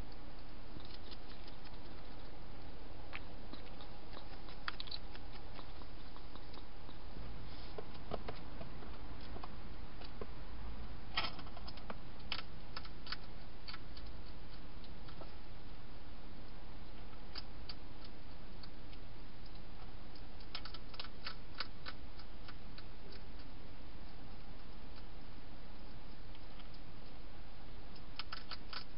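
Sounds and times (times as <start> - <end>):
steady hiss: 0.0 - 11.2
hedgehog crunching dry food: 0.1 - 7.0, 11.2 - 15.4, 17.0 - 27.2, 27.9 - 28.9.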